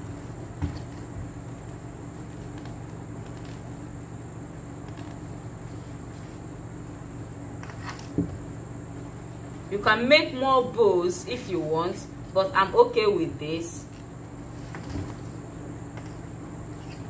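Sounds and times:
fabric rustling and tapping: 0.0 - 3.8
background hum: 0.0 - 17.0.

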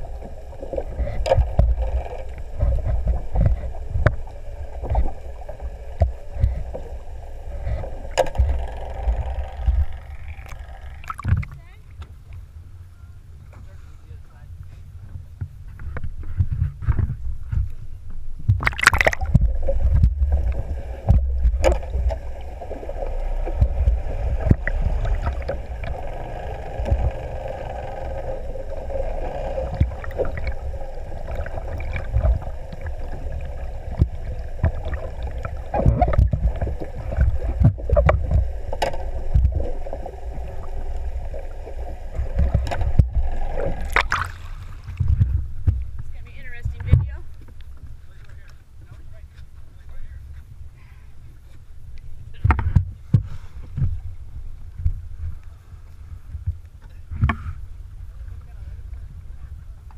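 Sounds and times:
muffled underwater water wash: 0.0 - 59.9
steady muffled hum: 0.0 - 59.9
sharp water splashes: 18.6 - 27.4, 28.0 - 45.2.

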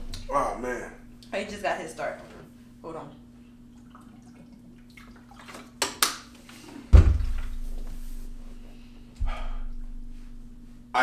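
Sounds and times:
heavy thump with low rumble: 6.9 - 7.7.

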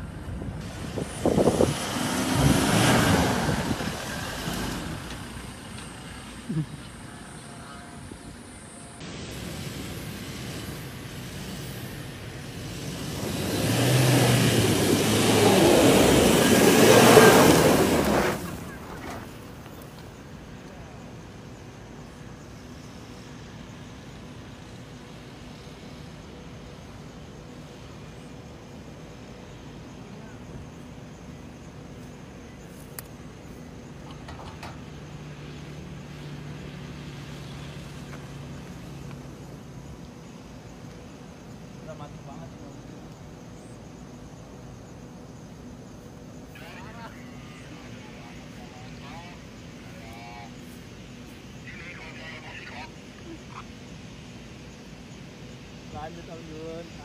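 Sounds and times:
car engine droning: 0.0 - 43.8, 44.5 - 57.0
suv engine revving: 0.6 - 6.4, 9.8 - 18.8
tyres on loose dirt: 9.0 - 20.7.

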